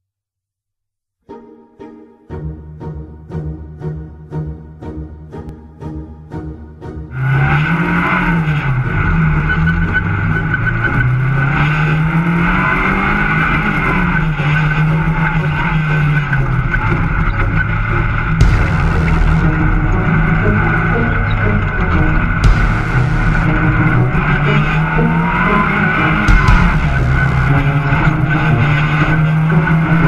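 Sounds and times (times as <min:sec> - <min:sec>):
racing engine revving: 0:07.1 - 0:30.0
brief music: 0:17.9 - 0:30.0.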